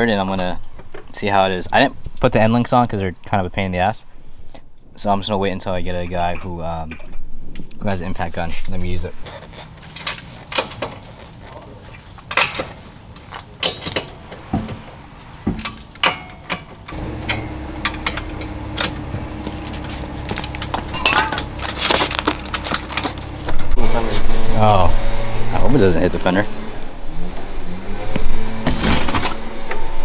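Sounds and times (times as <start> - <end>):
steady low hum: 7.2 - 27.8
metal clinks and knocks: 9.3 - 23.8.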